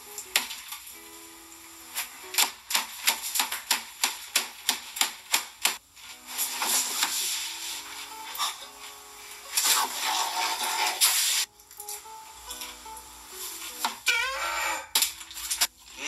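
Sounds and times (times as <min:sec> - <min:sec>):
rustling crunching hiss: 0:05.9 - 0:14.0.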